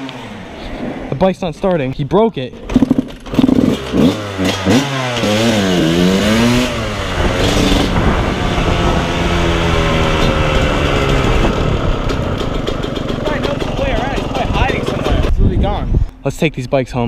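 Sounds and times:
dirt bike engine revving: 0:02.5 - 0:15.3.

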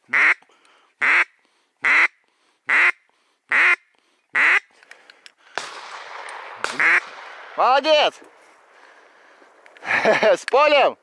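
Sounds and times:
duck quacking: 0:00.1 - 0:00.4, 0:01.0 - 0:04.7, 0:06.8 - 0:07.0.

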